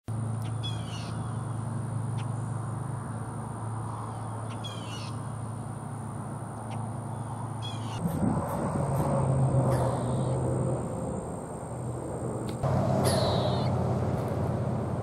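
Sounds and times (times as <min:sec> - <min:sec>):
steady low hum: 0:00.1 - 0:15.0
animal call high-pitched notes: 0:13.0 - 0:13.7.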